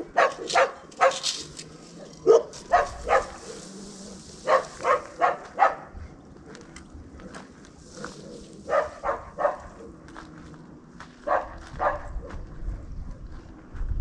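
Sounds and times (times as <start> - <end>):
dog barking: 0.1 - 1.3, 2.2 - 3.6, 4.4 - 5.9, 8.7 - 9.9, 11.2 - 12.4.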